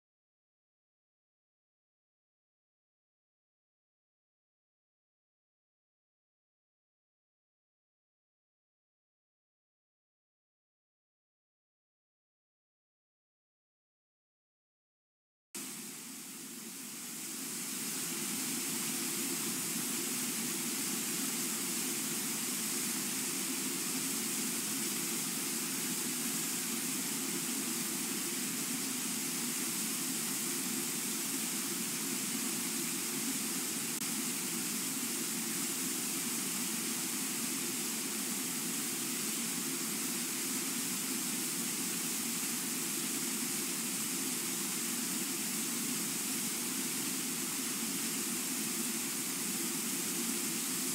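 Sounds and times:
waterfall and rapids rushing: 15.6 - 50.9.

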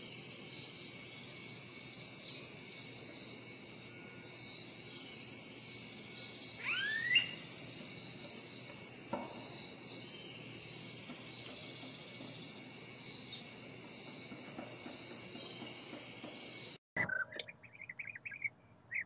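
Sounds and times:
high-pitched insect chorus: 0.0 - 16.8
loud rising bird call: 6.6 - 7.5.

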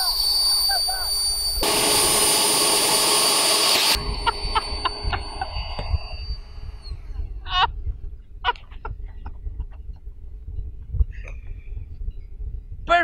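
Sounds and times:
electric ducted fan whine: 0.1 - 6.9.

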